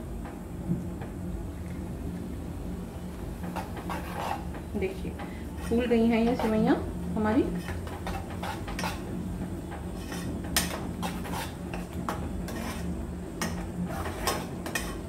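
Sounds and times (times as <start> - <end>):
spoon scraping metal saucepan: 3.6 - 4.5, 5.6 - 6.7, 7.5 - 9.1, 10.0 - 15.0.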